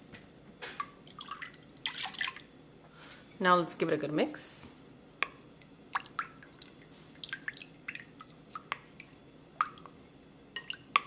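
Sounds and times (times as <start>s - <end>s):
wooden spoon stirring liquid: 5.2s - 11.0s.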